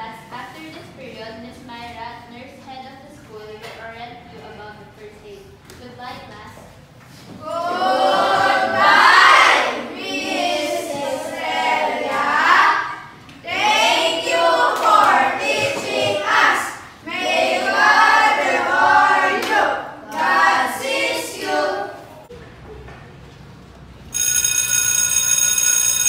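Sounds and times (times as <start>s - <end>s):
children singing in unison: 7.5s - 22.1s.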